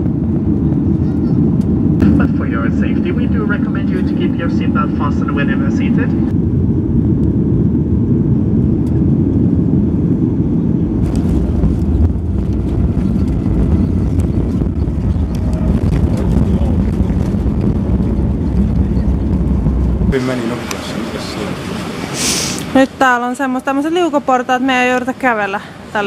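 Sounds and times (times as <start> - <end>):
jet engines and airflow rumble: 0.0 - 26.0
wheels rattling on runway: 11.0 - 22.0.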